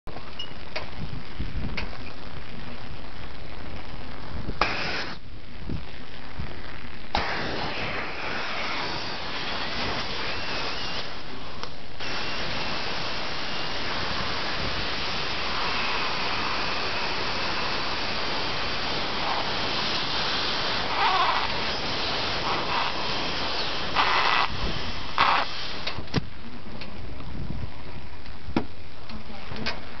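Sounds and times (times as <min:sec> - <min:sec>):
compressed air hissing into bottle: 0:04.6 - 0:05.2, 0:07.1 - 0:26.0.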